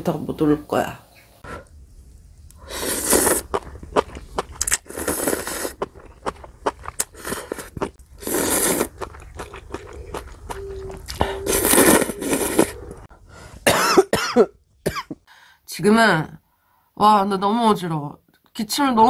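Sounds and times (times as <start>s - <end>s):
chewing: 2.5s - 13.1s
noisy slurping of noodles: 2.6s - 13.1s.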